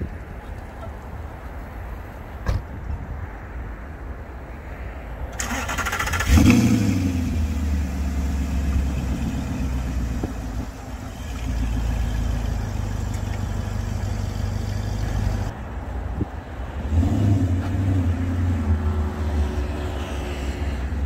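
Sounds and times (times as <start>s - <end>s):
car engine starting and idling: 5.3s - 15.5s.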